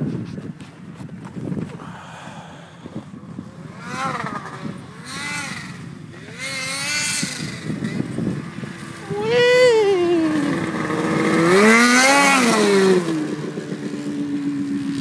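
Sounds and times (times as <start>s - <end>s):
snowmobile engine revving: 3.4s - 15.0s.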